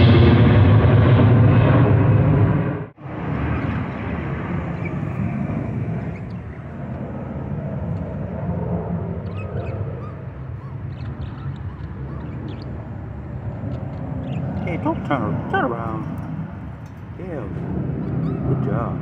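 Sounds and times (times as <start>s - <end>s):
aircraft passing rumble: 0.0s - 19.0s
budgerigars chirping: 9.2s - 12.9s, 14.2s - 14.6s, 18.1s - 18.5s.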